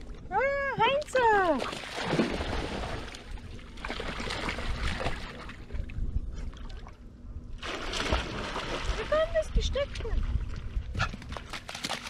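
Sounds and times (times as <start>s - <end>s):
dogs splashing through water: 0.8s - 5.6s, 7.6s - 12.0s.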